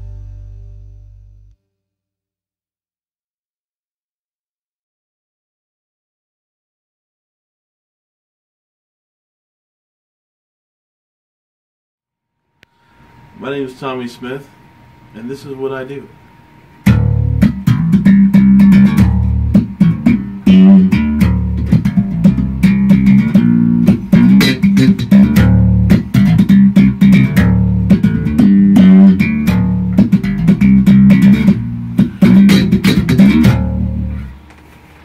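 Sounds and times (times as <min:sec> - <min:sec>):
electric bass guitar: 0:00.0 - 0:01.6, 0:16.8 - 0:34.5.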